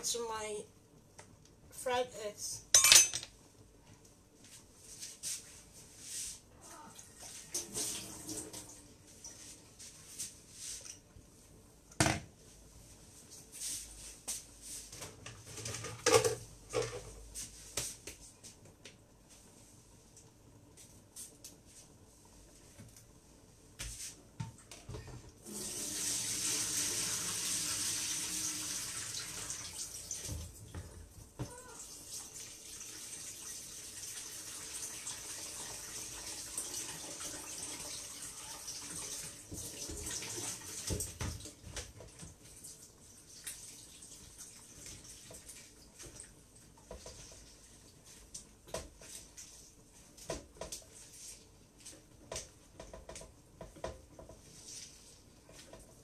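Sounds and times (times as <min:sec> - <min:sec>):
tap water running into sink: 0:25.4 - 0:30.9, 0:31.9 - 0:42.4.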